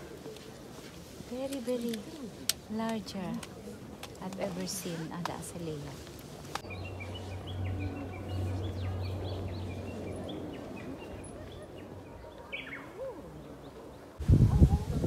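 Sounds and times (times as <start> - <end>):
small birds chirping: 6.6 - 14.2.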